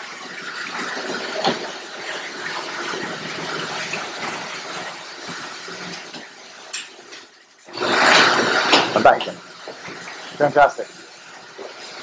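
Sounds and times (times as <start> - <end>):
garage door opener running: 0.0 - 12.0.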